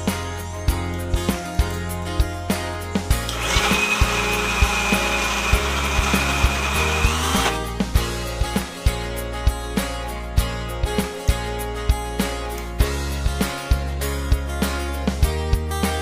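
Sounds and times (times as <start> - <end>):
music with steady beat: 0.0 - 16.0
mixer grinder whirring: 3.3 - 7.8.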